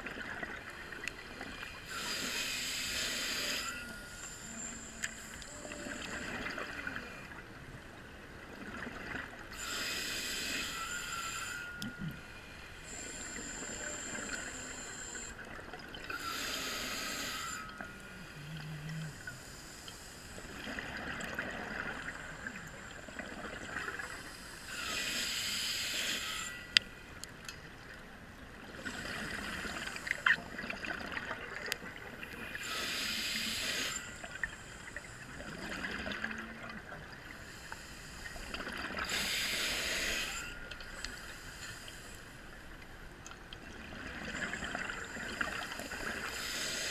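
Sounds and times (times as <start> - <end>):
regulator breathing hiss: 0.8 - 6.3, 9.5 - 15.5, 16.1 - 18.4, 19.2 - 20.6, 24.0 - 27.1, 32.3 - 35.4, 37.4 - 42.6, 45.6 - 46.9.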